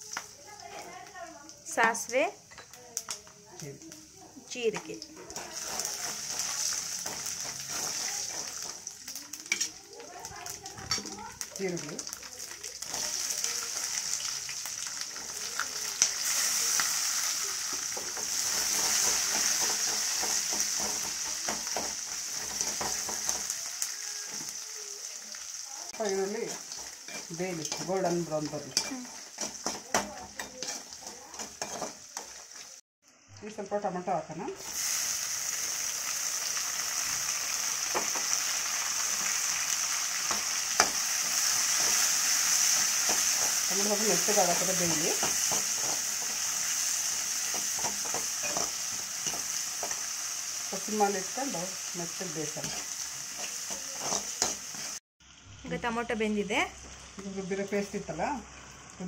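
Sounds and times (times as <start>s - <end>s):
onions sizzling in hot oil: 0.0s - 59.0s
spatula scraping and tapping pan: 4.7s - 9.8s, 17.7s - 23.5s, 26.5s - 32.4s, 45.1s - 46.5s, 47.4s - 50.0s, 52.6s - 55.0s
metal spoon clicking on pan: 47.5s - 50.0s.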